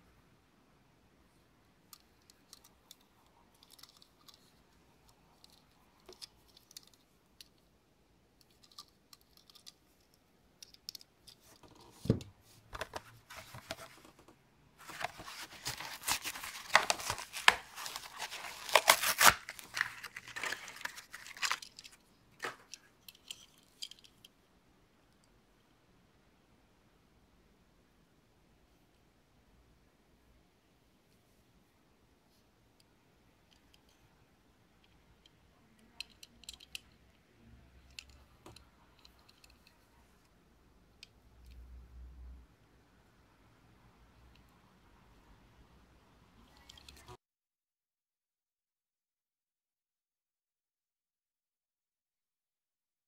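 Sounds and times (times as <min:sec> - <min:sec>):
blister pack tearing: 0:14.9 - 0:22.6.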